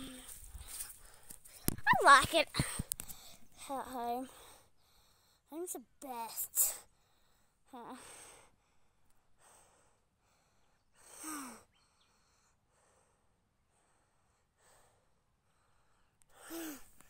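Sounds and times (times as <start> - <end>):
faint breath: 2.5 - 3.5, 4.3 - 5.5, 6.6 - 17.0
girl sighing: 16.4 - 16.9.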